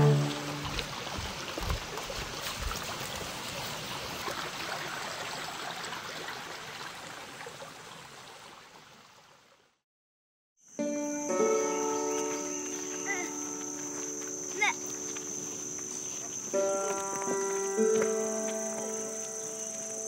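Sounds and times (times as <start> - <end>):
stream rushing and gurgling: 0.0 - 9.5.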